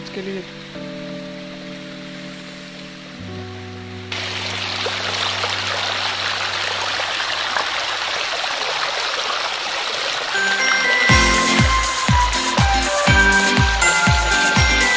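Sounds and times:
water rushing and splashing: 4.0 - 14.9.

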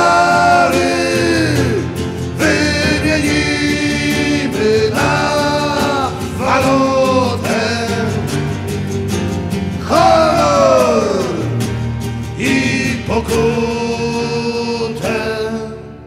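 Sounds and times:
men singing: 0.0 - 8.9, 9.8 - 16.0
instrumental accompaniment: 0.0 - 16.0.

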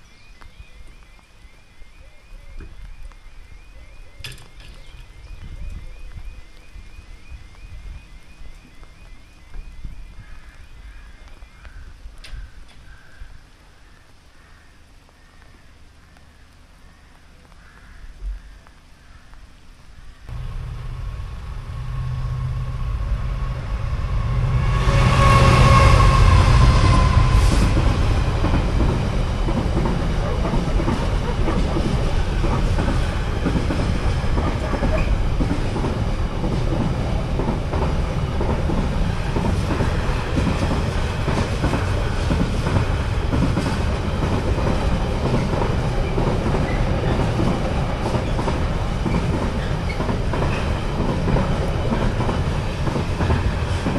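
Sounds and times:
locomotive engine hum: 20.3 - 53.9
train wagons rumbling: 20.3 - 53.9
train wheel clatter: 25.2 - 53.9.

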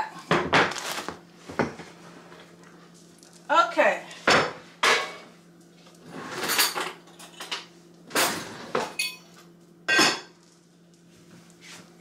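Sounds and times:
dishes and utensils clattering: 4.2 - 5.3, 6.2 - 9.3, 9.9 - 10.4.

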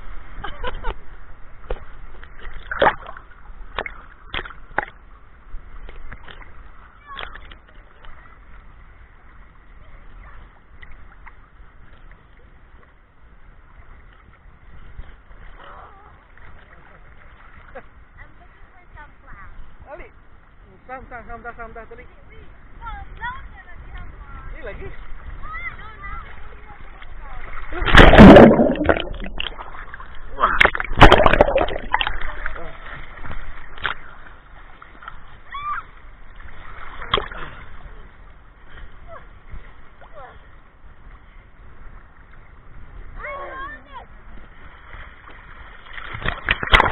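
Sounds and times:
sea water sloshing and splashing: 0.0 - 13.0, 13.8 - 18.0, 23.8 - 46.9
small splashes: 1.7 - 5.0, 26.0 - 37.9, 44.5 - 46.9
seawater sloshing and lapping: 23.2 - 40.5, 43.3 - 46.9
low rumble: 27.7 - 32.8.

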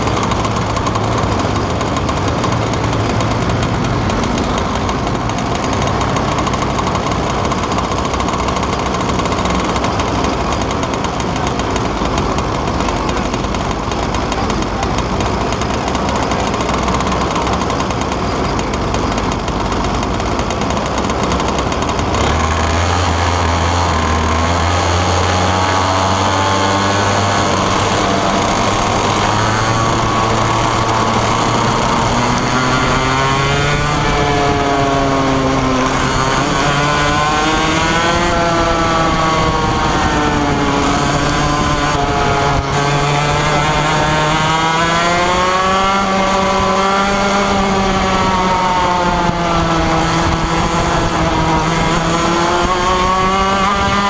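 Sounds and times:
kart engine revving: 0.0 - 54.0.

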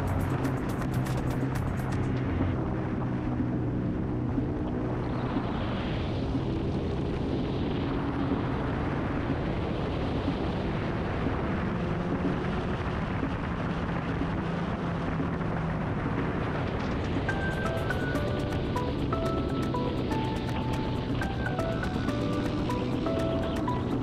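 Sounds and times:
motorcycle engine running: 0.0 - 2.9
wind rush on microphone: 0.0 - 24.0.

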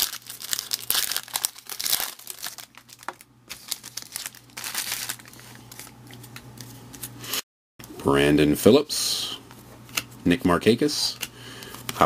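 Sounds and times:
foil wrapper crinkling and tearing: 0.0 - 5.9.

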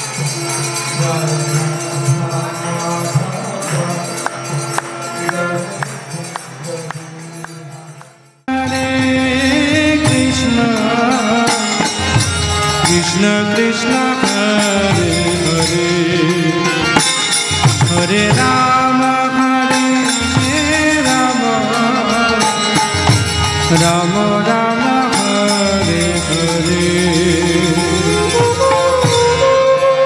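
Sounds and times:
steady percussion beat: 8.5 - 29.8
person singing a melody: 17.8 - 30.0.

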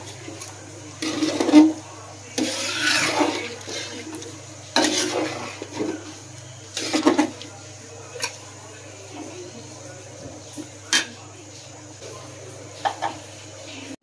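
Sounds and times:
metal spatula scraping pot: 0.4 - 7.5.

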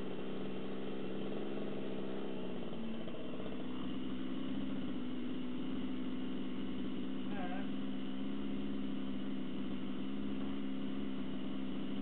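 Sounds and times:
two-stroke engine running: 0.0 - 12.0.

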